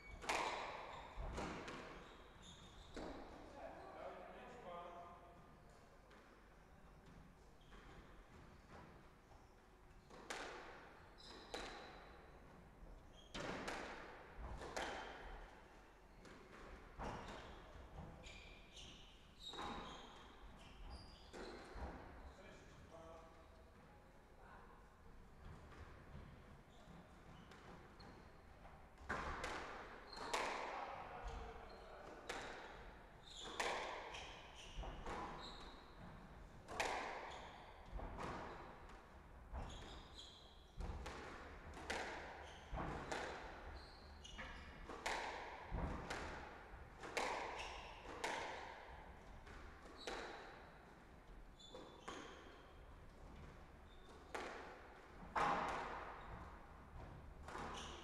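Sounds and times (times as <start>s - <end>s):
squash ball hitting rackets and walls: 0.0s - 2.0s, 10.0s - 12.6s, 13.3s - 15.6s, 16.2s - 18.4s, 25.4s - 31.4s, 32.0s - 58.0s.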